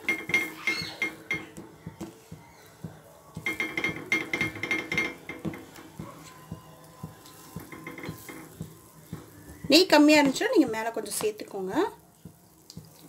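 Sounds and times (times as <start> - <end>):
metal spoon clinking on metal pan: 3.4 - 5.8, 7.6 - 8.6.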